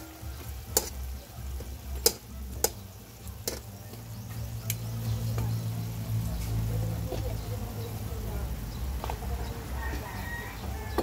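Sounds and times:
metal spatula clinking on wok: 0.7s - 1.0s, 1.9s - 4.0s.

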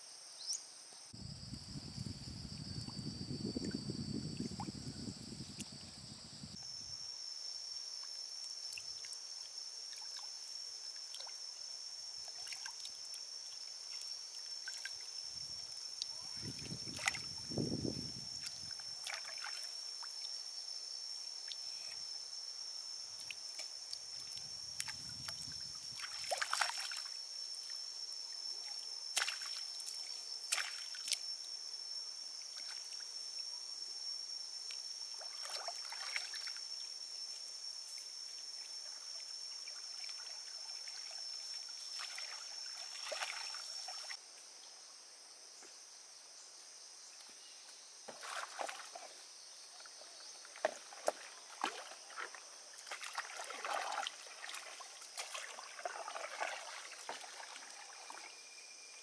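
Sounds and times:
steady high-pitched whine: 0.0s - 44.2s
water splashing and sloshing: 12.2s - 13.0s, 13.8s - 15.8s, 16.4s - 20.3s, 23.2s - 27.1s, 28.6s - 31.2s, 35.2s - 36.6s, 38.9s - 44.2s, 48.1s - 58.5s
pole splashing and dripping: 15.7s - 17.5s, 18.4s - 20.2s, 23.2s - 27.1s, 29.1s - 31.2s, 35.2s - 36.6s, 39.1s - 44.2s, 50.5s - 58.3s
person wading through water: 48.1s - 49.1s, 50.5s - 58.4s.

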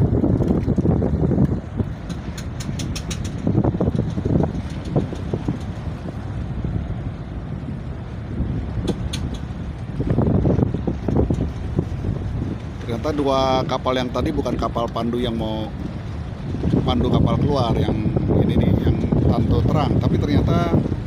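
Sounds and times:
boat engines rumbling: 0.0s - 21.0s
wind buffeting microphone: 0.0s - 21.0s
sharp clicks: 2.0s - 5.7s.

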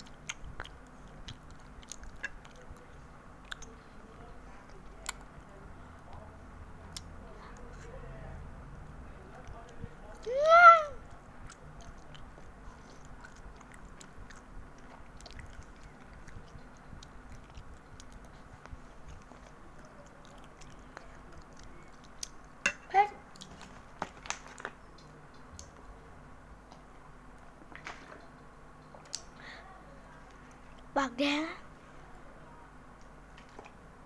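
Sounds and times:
girl chewing and slurping noodles: 11.4s - 22.4s.

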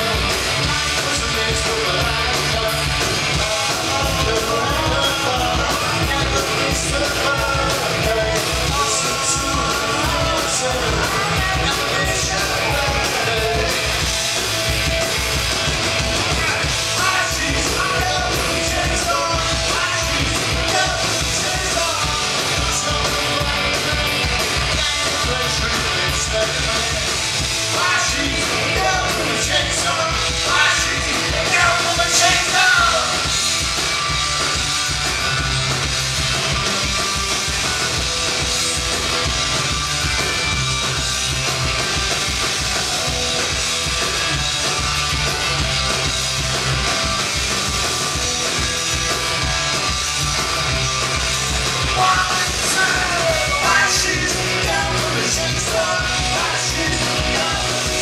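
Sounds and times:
man singing: 0.0s - 14.1s, 16.3s - 33.3s, 51.9s - 58.0s
punk rock band playing: 0.0s - 58.0s.

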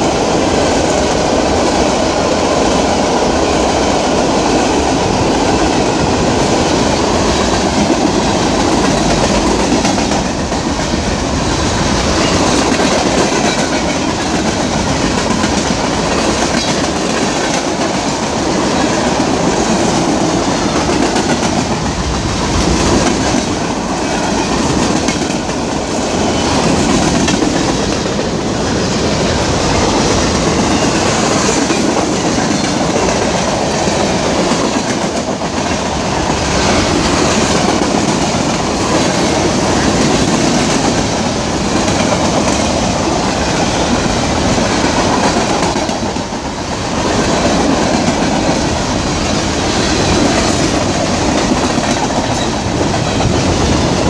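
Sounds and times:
train wheels running on rails: 0.0s - 54.0s.

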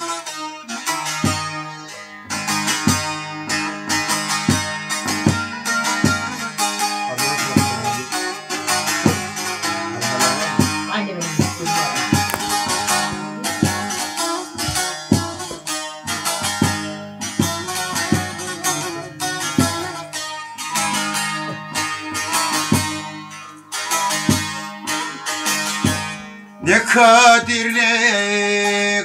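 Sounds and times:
long-necked lute played solo: 0.0s - 29.0s.

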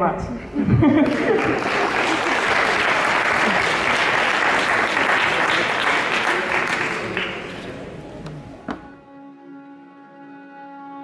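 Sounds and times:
audience applauding: 1.0s - 8.0s.

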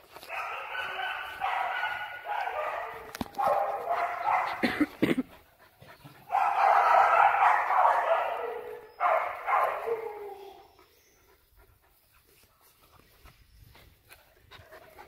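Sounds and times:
dogs barking: 0.0s - 5.0s, 6.2s - 10.7s
dogs yapping and whining: 0.1s - 5.0s, 5.7s - 11.6s.

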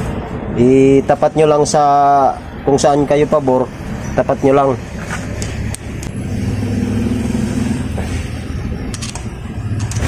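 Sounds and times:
vehicle engine running: 3.6s - 10.0s
metal tool clicks: 8.9s - 10.0s.

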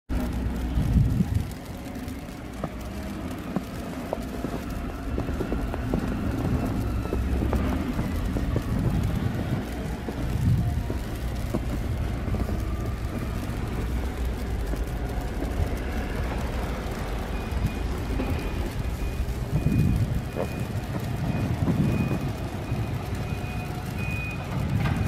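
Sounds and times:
passing cars rumbling: 0.1s - 25.0s
wind on microphone: 0.8s - 1.6s, 7.9s - 13.6s, 19.4s - 22.5s.

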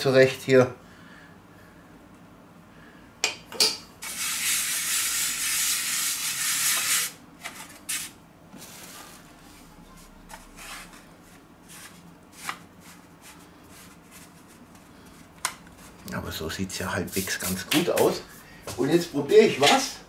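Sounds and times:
dough handling rustles: 7.3s - 16.1s.

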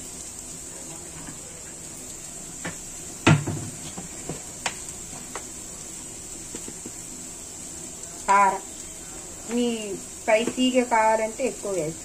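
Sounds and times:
faint steady hiss: 0.0s - 12.0s
kitchen things knocking and clicking: 2.6s - 4.4s
loud thump: 3.2s - 3.8s.

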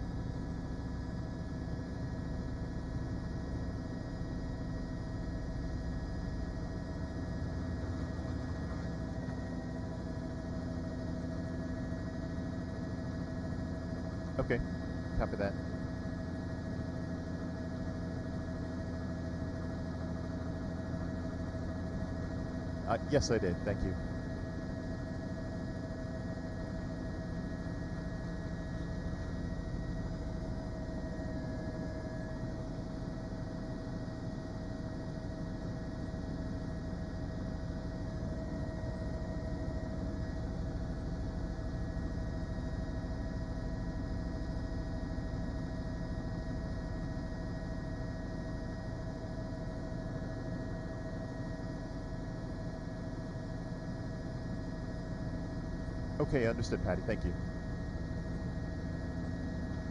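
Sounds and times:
machine hum: 0.0s - 51.0s.

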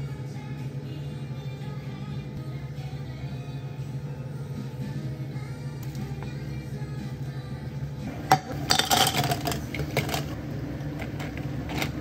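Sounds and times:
utensils clinking and clattering: 8.3s - 10.4s.

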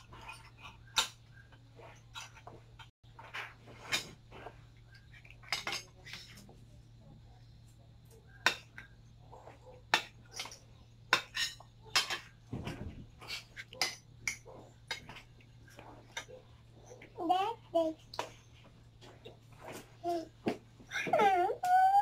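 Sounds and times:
cutlery clinking on plates: 5.3s - 6.4s, 9.9s - 15.4s.

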